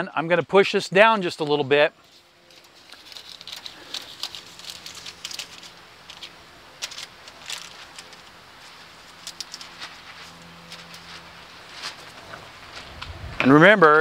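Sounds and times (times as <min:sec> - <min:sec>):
parchment paper crinkling: 0:02.0 - 0:13.0.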